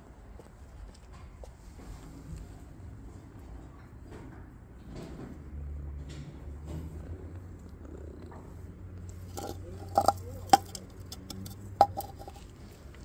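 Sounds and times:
cat purring: 0:06.6 - 0:12.9
plastic bowl knocking on paving: 0:09.3 - 0:12.4.

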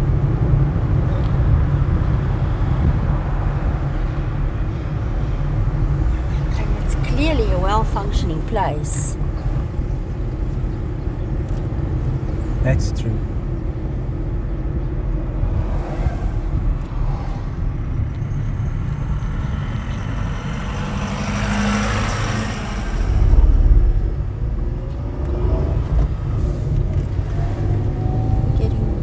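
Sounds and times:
car engine and tyre rumble: 0:00.0 - 0:29.0
truck passing: 0:13.8 - 0:29.0.

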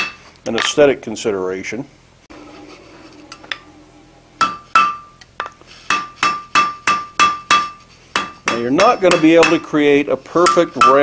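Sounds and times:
hammer striking iron on anvil: 0:04.4 - 0:09.8, 0:10.4 - 0:11.0.

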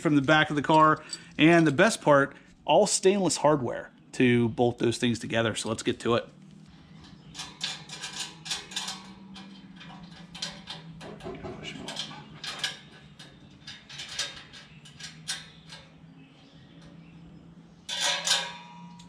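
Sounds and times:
metallic clicks of tools and bolts: 0:00.1 - 0:01.9, 0:07.0 - 0:16.1, 0:17.9 - 0:19.0.

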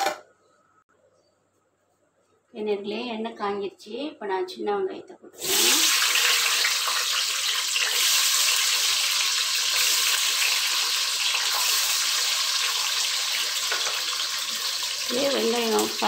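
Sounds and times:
onions sizzling in hot oil: 0:05.4 - 0:16.0.

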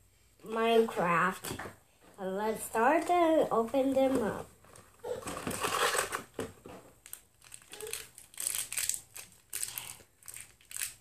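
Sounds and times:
foil wrapper crinkling: 0:07.0 - 0:11.0.

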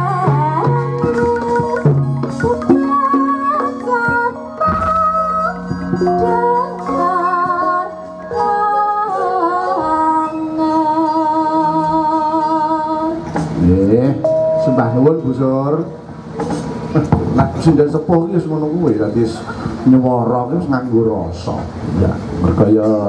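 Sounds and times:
woman singing: 0:00.0 - 0:13.4
gamelan music: 0:00.0 - 0:18.3.

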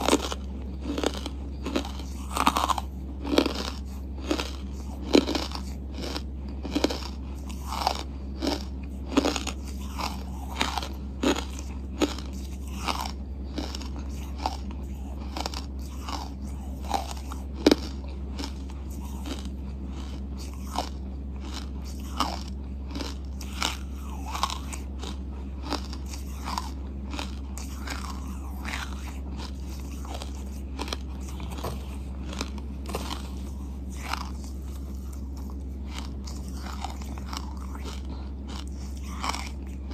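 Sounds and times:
chewing hard charcoal crunches: 0:00.0 - 0:39.9.

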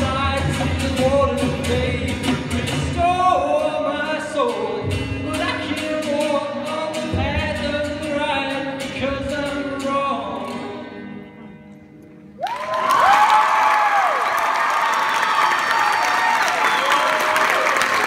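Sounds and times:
acoustic guitar: 0:00.0 - 0:12.4
audience whoop: 0:12.4 - 0:18.0.

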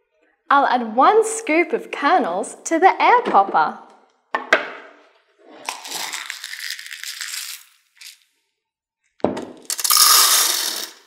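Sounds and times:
kernels pouring into popper: 0:05.6 - 0:08.2, 0:09.6 - 0:11.0
scoop digging into popcorn kernels: 0:05.6 - 0:08.2.

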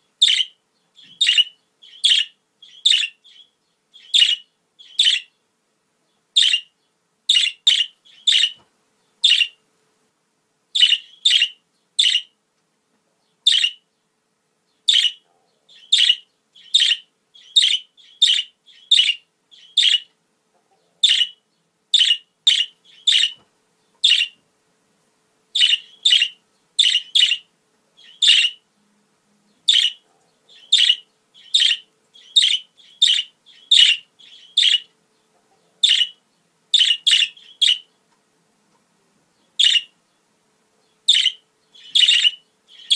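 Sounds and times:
budgerigar chirping: 0:00.2 - 0:05.4, 0:06.4 - 0:06.7, 0:07.3 - 0:08.6, 0:09.2 - 0:09.6, 0:10.8 - 0:12.4, 0:13.4 - 0:13.8, 0:14.9 - 0:20.1, 0:21.0 - 0:23.4, 0:24.0 - 0:24.4, 0:25.5 - 0:28.6, 0:29.6 - 0:34.9, 0:35.8 - 0:37.9, 0:39.5 - 0:40.0, 0:41.0 - 0:42.9.

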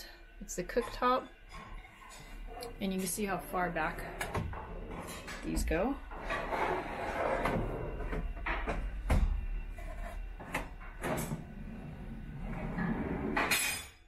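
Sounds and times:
drawers sliding on metal slides: 0:06.1 - 0:08.2, 0:11.0 - 0:13.6.

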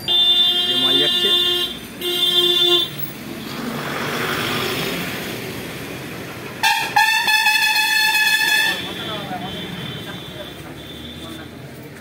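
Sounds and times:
vehicle horn honking: 0:00.0 - 0:03.0, 0:06.6 - 0:11.4
vehicle passing: 0:03.0 - 0:07.0.

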